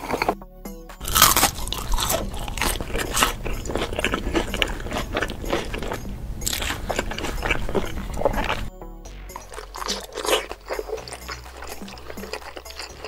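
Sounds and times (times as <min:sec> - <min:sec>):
crunchy food chewing: 0:00.0 - 0:00.4, 0:01.0 - 0:13.0.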